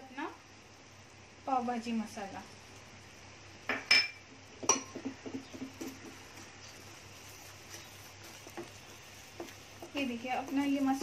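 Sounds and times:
spoon tapping and scraping: 3.7s - 11.0s
spoon clinking against frying pan: 3.8s - 5.0s.

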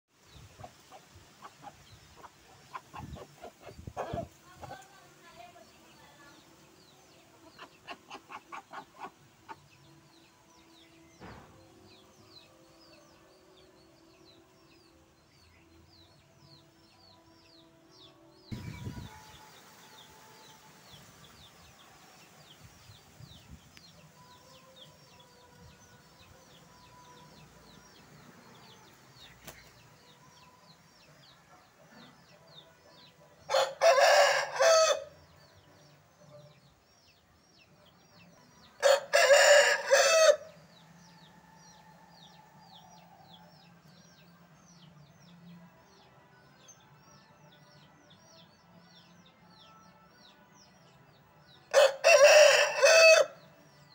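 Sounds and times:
rooster crowing: 33.5s - 35.1s, 38.8s - 40.5s, 51.7s - 53.4s.

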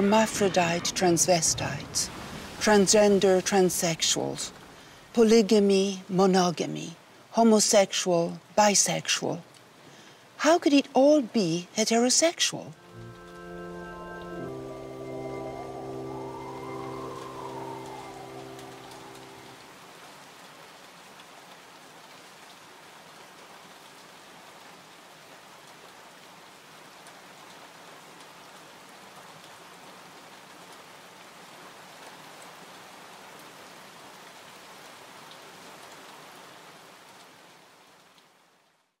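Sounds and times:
steady rain falling: 0.0s - 39.0s
faint raindrop ticks: 9.4s - 10.2s, 20.3s - 24.8s, 31.9s - 38.8s.

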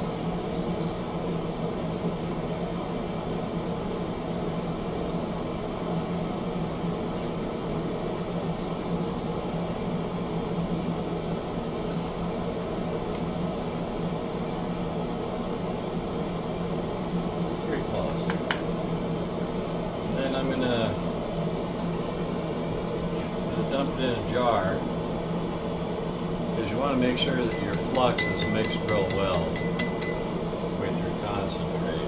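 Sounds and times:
steady low hum: 0.0s - 32.0s
propane torch hissing: 9.0s - 32.0s.

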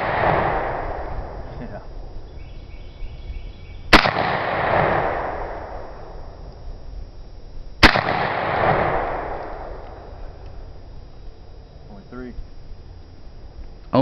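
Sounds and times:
shotgun shots with echo: 0.0s - 1.4s, 3.9s - 6.2s, 7.8s - 9.9s.

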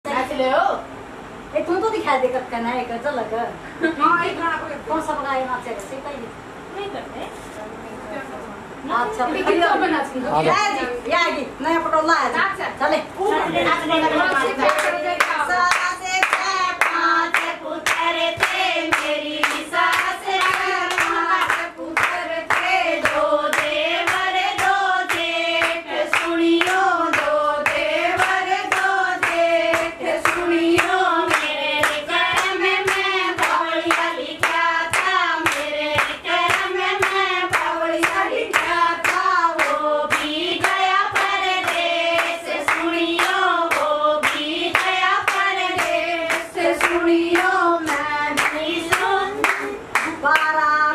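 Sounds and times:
hand-claps: 14.3s - 50.6s
women singing folk song: 14.3s - 50.9s.

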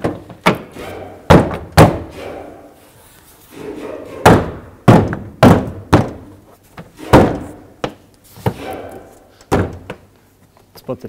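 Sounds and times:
gloved hands thunking plastic trim: 4.3s - 8.6s, 9.5s - 10.1s.

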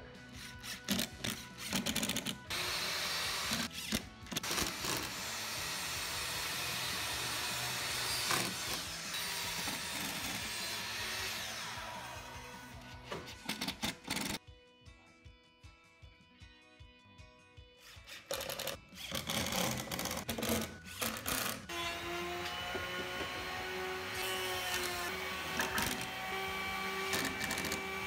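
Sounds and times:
impact driver hammering: 22.0s - 28.0s.

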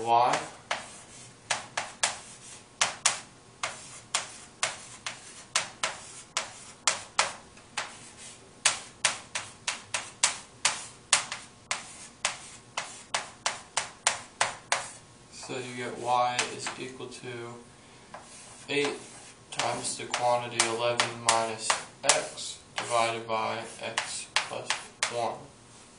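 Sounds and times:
chalk tapping on chalkboard: 0.3s - 15.0s, 16.4s - 16.8s, 18.1s - 25.2s.

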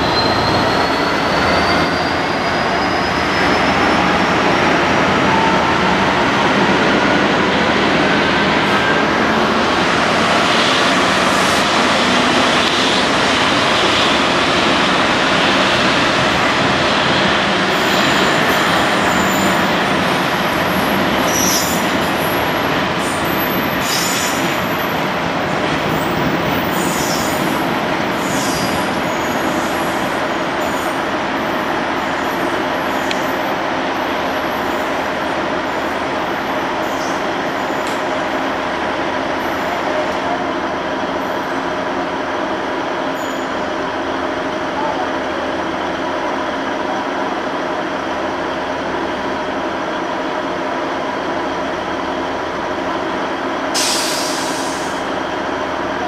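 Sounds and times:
high wheel squeals: 0.0s - 4.3s.

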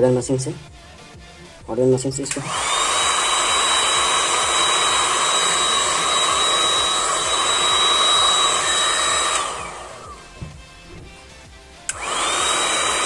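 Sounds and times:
heat gun blowing with motor whine: 2.2s - 10.5s, 11.9s - 13.0s.

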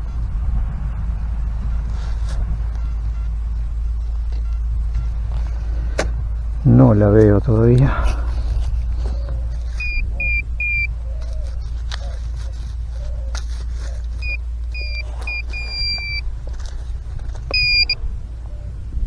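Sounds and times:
metal detector pinpointer beeping: 2.6s - 5.2s, 9.7s - 11.0s, 14.2s - 16.2s, 17.5s - 18.0s.

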